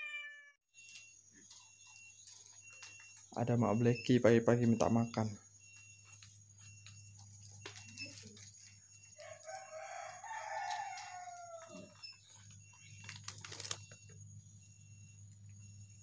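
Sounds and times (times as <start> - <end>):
rooster crowing: 9.1 - 12.0.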